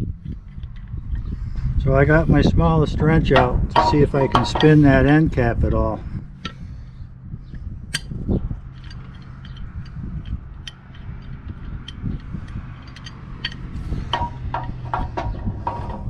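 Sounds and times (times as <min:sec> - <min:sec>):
steady low hum: 0:00.0 - 0:16.0
metal clicks and taps of wrench: 0:08.8 - 0:16.0.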